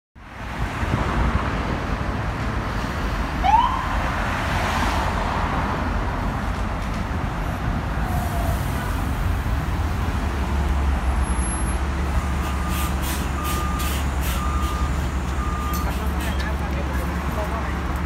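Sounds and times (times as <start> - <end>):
busy road traffic: 0.2 - 18.0
bus diesel engine rumble: 5.7 - 18.0.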